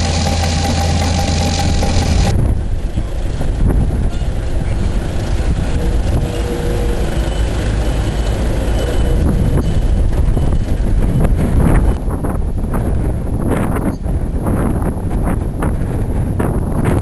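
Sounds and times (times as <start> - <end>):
engine rumbling: 0.0 - 17.0
wind buffeting microphone: 0.0 - 17.0.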